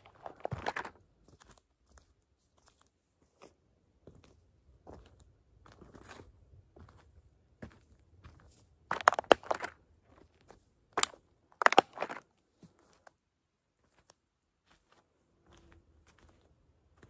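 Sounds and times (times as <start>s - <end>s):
toy truck crunching and cracking: 0.0s - 1.0s, 8.9s - 9.8s, 11.0s - 12.2s.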